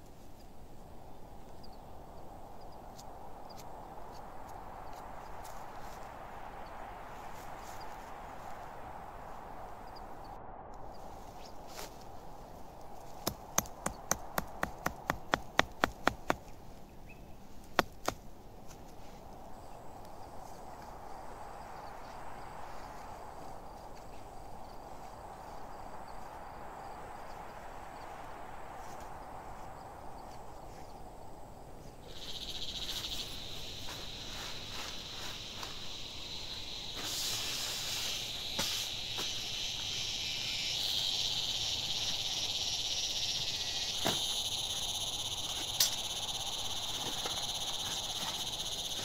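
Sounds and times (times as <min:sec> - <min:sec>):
tent stake being hammered: 0:13.2 - 0:16.4, 0:17.7 - 0:18.2
high insect buzz: 0:17.6 - 0:49.0.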